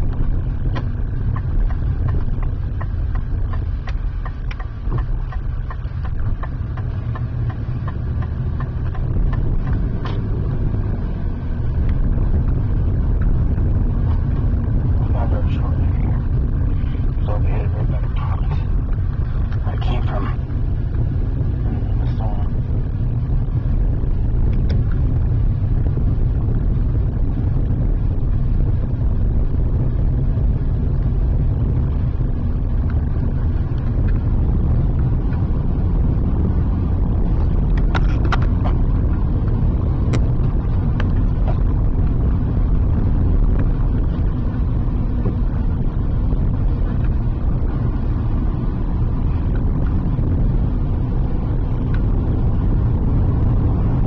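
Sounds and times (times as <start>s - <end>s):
car road and engine noise: 0.0s - 54.0s
sharp clicks: 0.1s - 10.2s.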